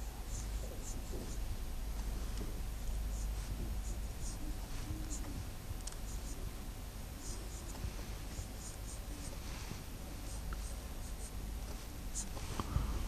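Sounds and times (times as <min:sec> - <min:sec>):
marker pen writing on whiteboard: 0:07.2 - 0:13.0.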